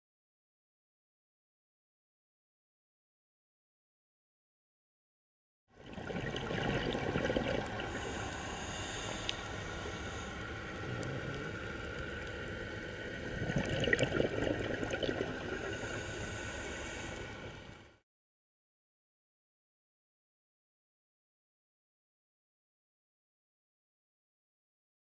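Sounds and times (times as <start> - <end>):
underwater water noise: 5.7 - 18.0
bubbles gurgling underwater: 5.8 - 8.2, 13.1 - 15.8.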